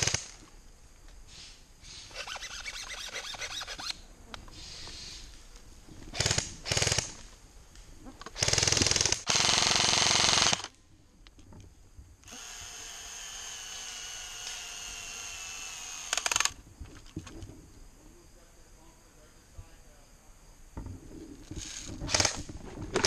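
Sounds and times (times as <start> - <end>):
steady hiss: 0.0 - 22.6
airsoft guns firing bursts: 6.1 - 7.2, 8.4 - 10.7.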